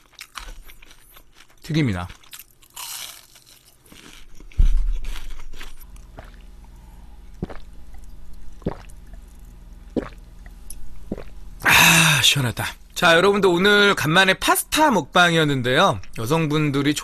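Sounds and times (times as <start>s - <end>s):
chewing: 0.0s - 11.4s.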